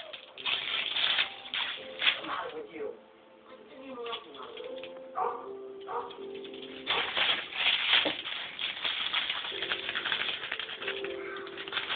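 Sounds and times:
foil ball crackling and rustling: 0.0 - 2.7, 5.8 - 11.9.

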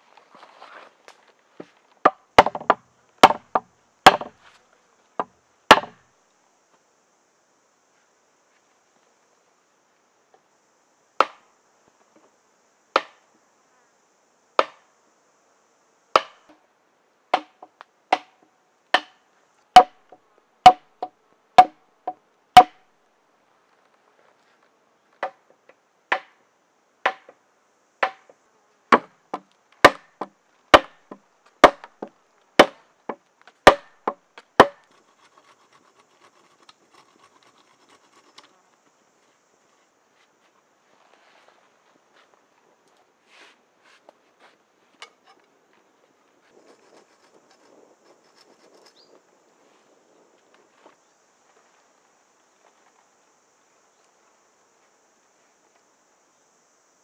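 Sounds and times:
faint rustling: 0.0 - 2.0, 34.8 - 53.3
stick striking wooden poles: 1.6 - 4.4, 5.2 - 6.0, 11.2 - 11.4, 13.0 - 13.2, 14.6 - 14.8, 16.2 - 16.6, 17.3 - 22.8, 25.2 - 25.5, 26.1 - 26.4, 27.0 - 27.4, 28.0 - 35.6.

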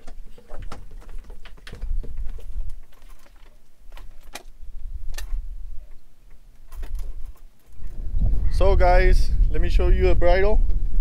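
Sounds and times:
sharp clicks and light knocks: 0.0 - 7.8.

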